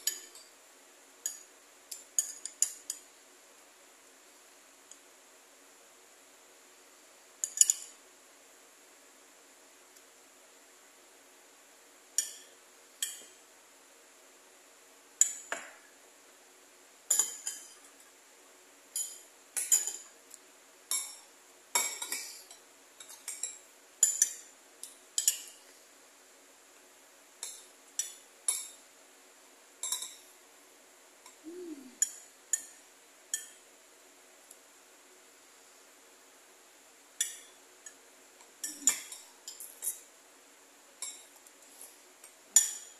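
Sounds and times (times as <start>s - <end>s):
metal spoon clinking on a bowl: 7.4s - 8.0s, 17.1s - 17.8s, 19.0s - 20.0s, 21.8s - 25.6s, 29.8s - 30.2s, 32.0s - 33.6s, 41.0s - 41.3s, 42.6s - 42.9s.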